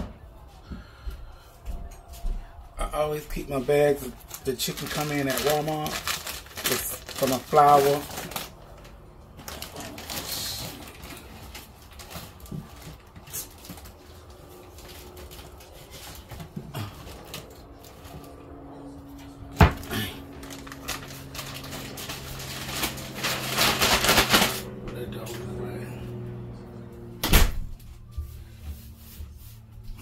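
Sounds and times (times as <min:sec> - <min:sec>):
plastic bag rustling: 0:03.0 - 0:18.6, 0:19.8 - 0:24.8.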